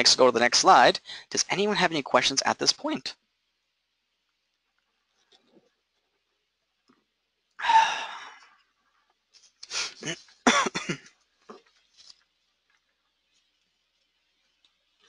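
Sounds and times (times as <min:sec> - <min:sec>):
person coughing: 0:09.8 - 0:11.1.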